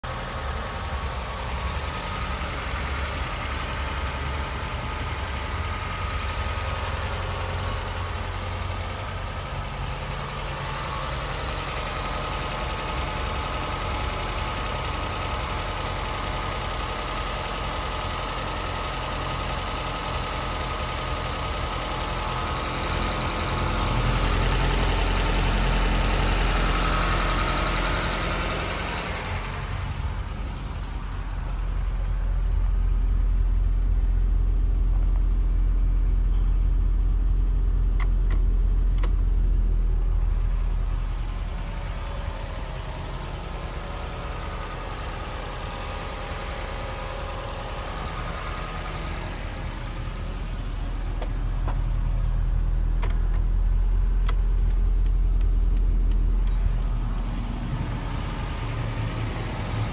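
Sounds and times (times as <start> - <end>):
car engine idling: 0.0 - 59.9
low rumble: 28.9 - 44.8, 46.9 - 59.9.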